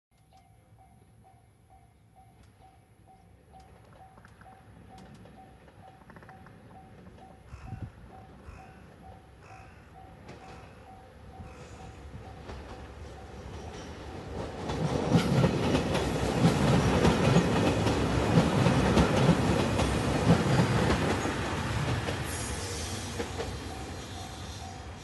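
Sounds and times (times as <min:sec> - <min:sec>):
express train passing: 0:00.3 - 0:25.0
wheels clicking over rail joints: 0:03.5 - 0:07.5, 0:12.4 - 0:22.2.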